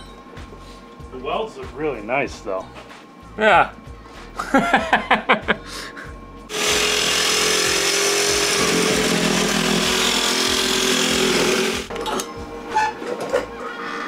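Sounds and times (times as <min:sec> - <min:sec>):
electric grinder grinding metal: 0:06.5 - 0:11.9.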